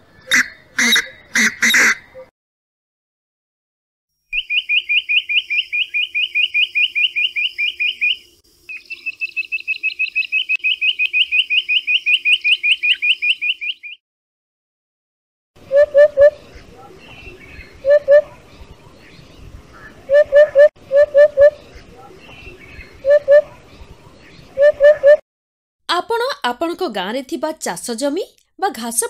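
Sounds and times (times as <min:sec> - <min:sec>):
quail calling rapid high notes: 0:00.2 - 0:02.3
francolin harsh calls: 0:04.3 - 0:14.0.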